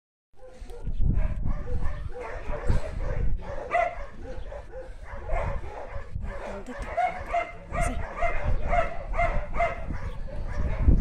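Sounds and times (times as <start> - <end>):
dog barking and whining: 0.4 - 11.0.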